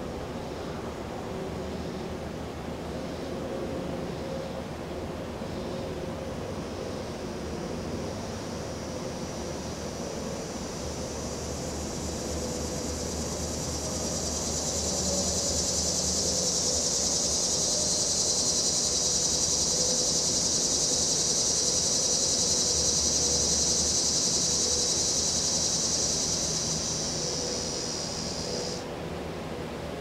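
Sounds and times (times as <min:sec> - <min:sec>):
cicadas buzzing: 0:05.4 - 0:28.9.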